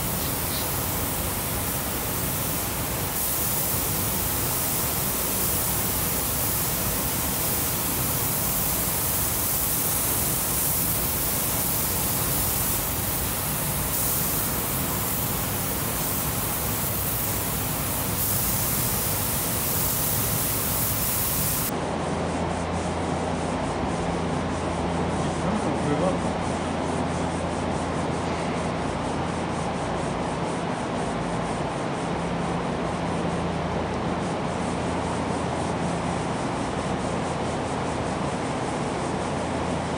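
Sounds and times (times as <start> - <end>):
air spray guns hissing: 0.0 - 21.7.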